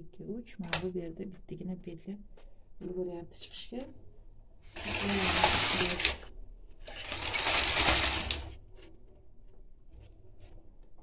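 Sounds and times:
knitting machine carriage clattering: 4.7 - 10.7.

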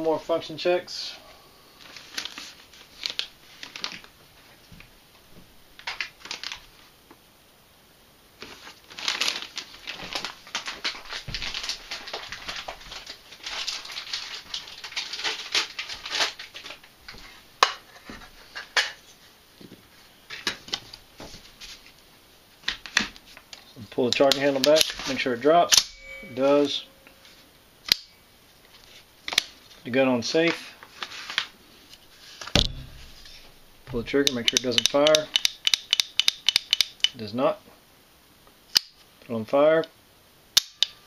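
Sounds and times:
rustling and crinkling handling noise: 1.7 - 7.2, 8.4 - 25.6, 28.4 - 35.3
sharp clicks: 34.1 - 37.2.

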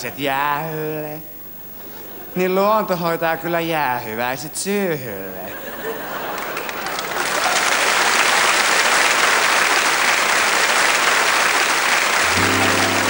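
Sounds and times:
audience applauding: 6.1 - 13.0.

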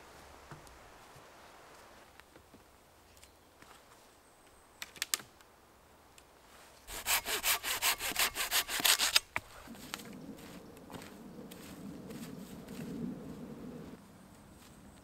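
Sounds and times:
stick raking dry leaves: 6.9 - 10.0.

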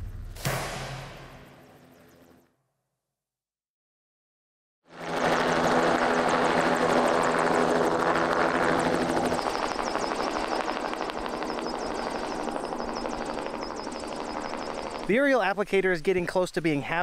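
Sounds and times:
helicopter passing overhead: 1.3 - 2.5, 4.8 - 16.1.

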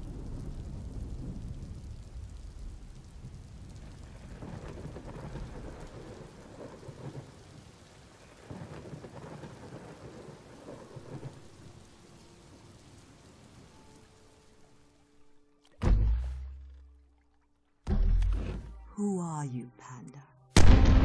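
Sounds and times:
thunder rumbling: 0.0 - 14.2
steady rain: 0.0 - 15.7.

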